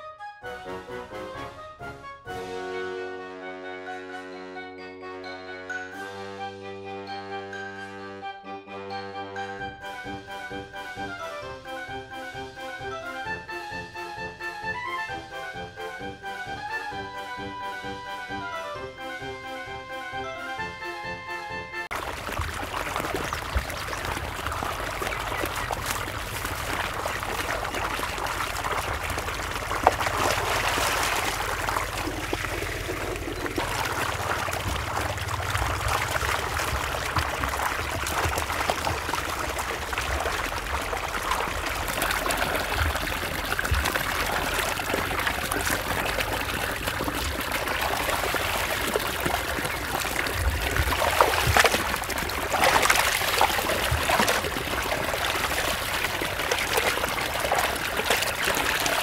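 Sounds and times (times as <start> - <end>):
water trickling: 21.9 - 59.0.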